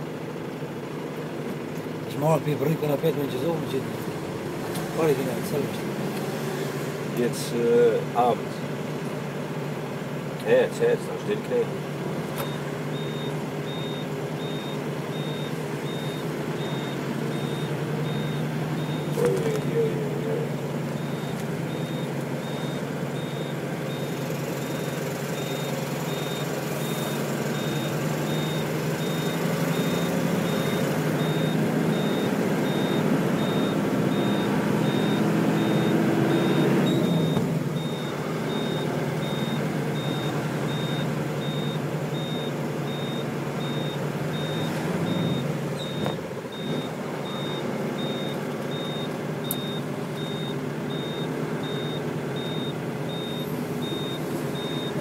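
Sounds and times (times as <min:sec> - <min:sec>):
vehicle engine and road rumble: 0:00.0 - 0:55.0
high-pitched electronic beep: 0:21.0 - 0:55.0.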